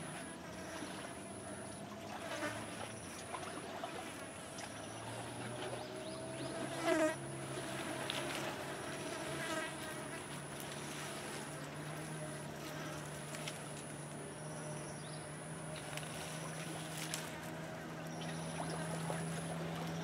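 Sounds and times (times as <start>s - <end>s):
low fly-like buzz: 0.0s - 20.0s.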